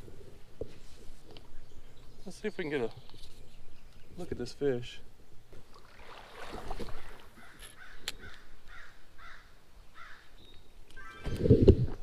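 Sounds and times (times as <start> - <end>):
water sloshing: 5.6 - 7.8
bird calling: 6.8 - 11.5.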